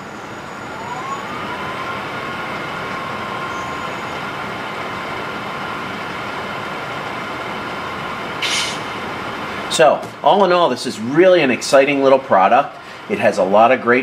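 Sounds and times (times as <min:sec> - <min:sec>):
electric hum with rising whine: 0:00.0 - 0:09.8.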